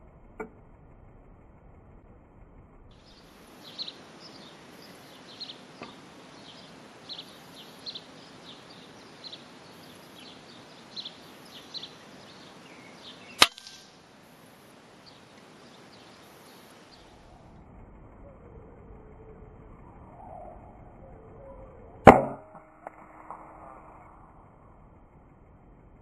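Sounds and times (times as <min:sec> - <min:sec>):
sparrows chirping: 0:02.9 - 0:17.6
air rifle shot: 0:13.4 - 0:14.0.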